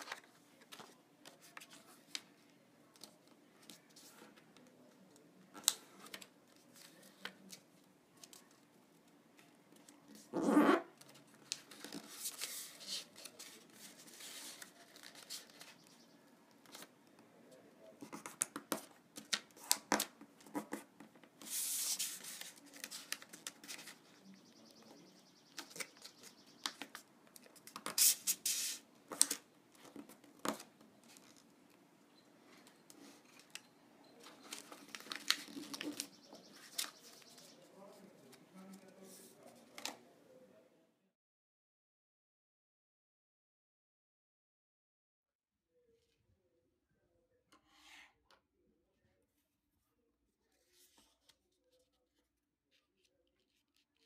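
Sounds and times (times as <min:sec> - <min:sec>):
paper rustling and crinkling: 0:00.0 - 0:10.4, 0:11.0 - 0:17.0, 0:18.0 - 0:31.8, 0:34.2 - 0:40.0.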